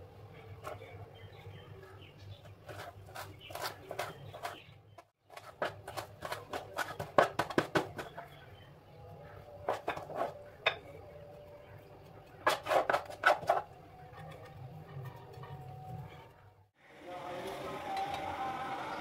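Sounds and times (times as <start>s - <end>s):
knife chopping on plastic board: 2.7s - 4.7s, 5.3s - 8.2s.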